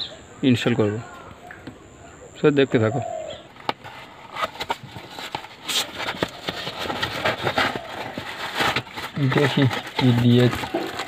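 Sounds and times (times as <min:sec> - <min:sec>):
cardboard box rustling: 0:03.5 - 0:11.0.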